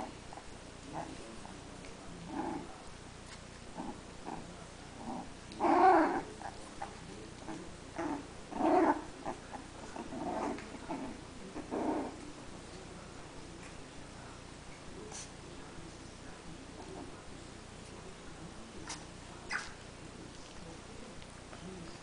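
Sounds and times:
puppies growling: 0.0 - 14.1.

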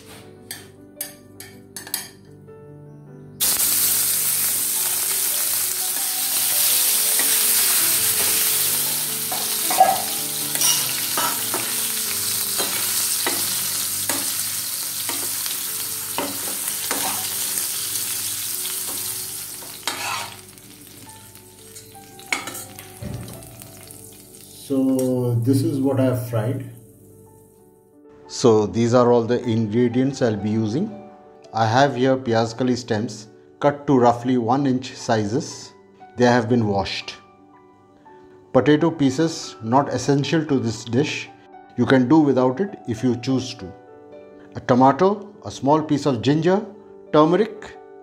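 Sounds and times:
prawns sizzling in hot oil: 3.4 - 24.8
metal spatula scraping pan: 19.7 - 20.5.

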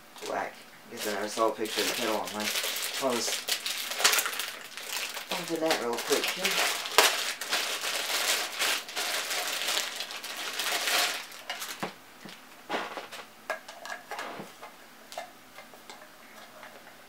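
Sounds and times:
plastic bag crinkling: 0.2 - 13.3.

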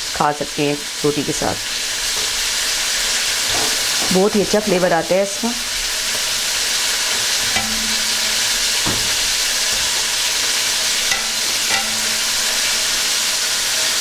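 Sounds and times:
chillies sizzling in oil: 0.0 - 14.0
wire skimmer stirring: 5.9 - 14.0.

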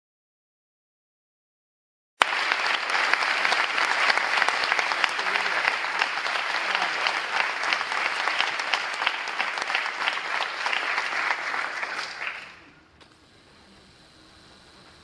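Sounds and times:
audience applause: 2.2 - 12.8.

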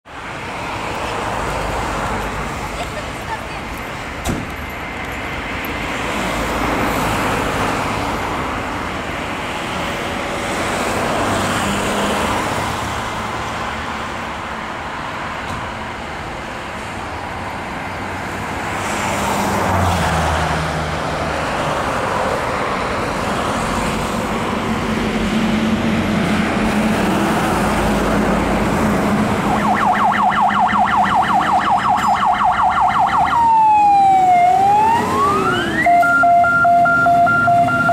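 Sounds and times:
fire engine diesel engine: 0.0 - 37.9
road traffic passing: 0.0 - 37.9
siren yelping: 29.4 - 37.9.

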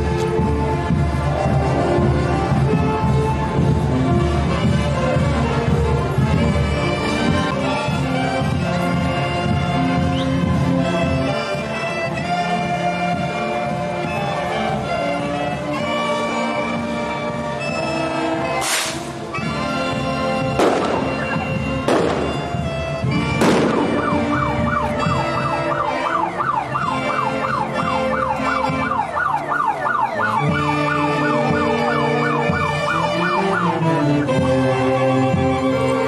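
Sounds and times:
band music with violins: 0.0 - 36.0
sharp bangs: 18.6 - 19.2, 20.6 - 24.4.

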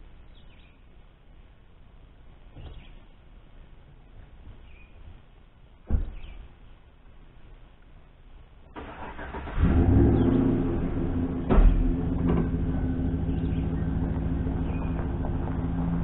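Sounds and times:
truck engine starting and running: 8.7 - 16.0
sharp clunk: 11.5 - 12.5.

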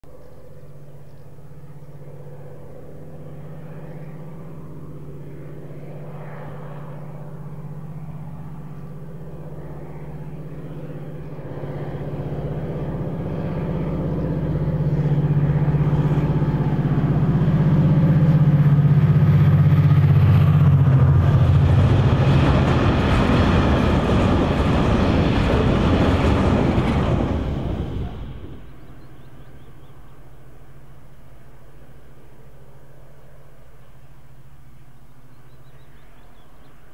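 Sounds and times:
locomotive diesel engine drone: 0.0 - 36.8
wagons rumbling on rails: 6.7 - 30.8.

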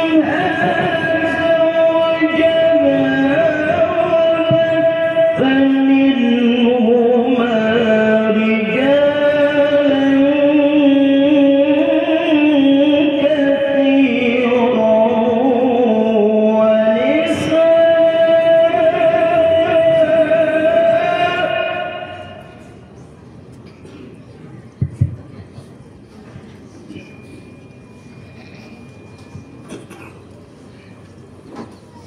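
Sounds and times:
man reciting melodically: 0.0 - 22.8.

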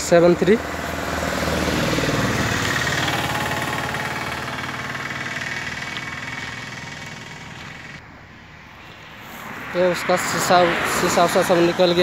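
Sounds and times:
vehicle engine running: 0.0 - 8.0.

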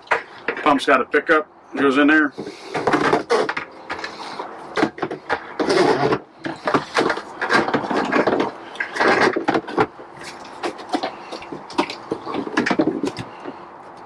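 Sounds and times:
plastic jug and hose handling: 2.3 - 14.0.

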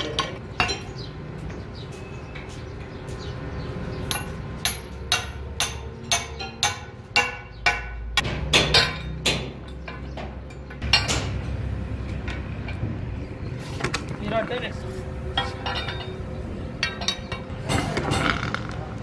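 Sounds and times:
steel tools knocking on metal: 0.0 - 1.6, 4.1 - 11.4, 15.4 - 16.2
loud metal clanks: 4.1 - 11.6.

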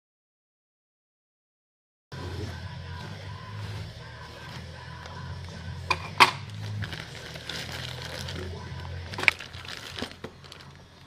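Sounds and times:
packaging and box rustling: 6.0 - 11.0.

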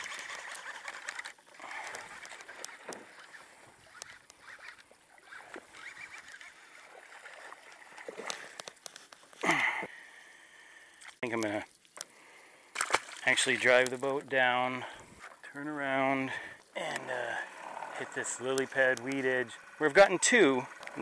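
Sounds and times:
fishing reel being cranked: 0.0 - 8.9, 16.2 - 21.0
fish splashing: 0.0 - 14.0.

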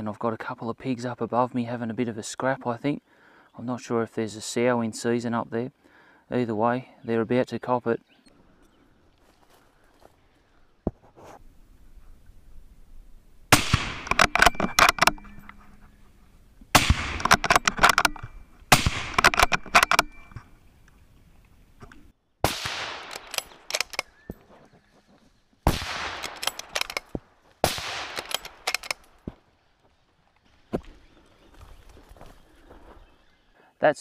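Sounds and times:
rifle shots with rolling echo: 13.5 - 15.5, 16.7 - 20.2, 22.4 - 24.2, 25.6 - 29.2
rifle bolt being worked: 14.0 - 15.6, 17.1 - 18.4, 19.1 - 20.4, 23.0 - 24.2, 26.2 - 27.2, 28.1 - 29.2.

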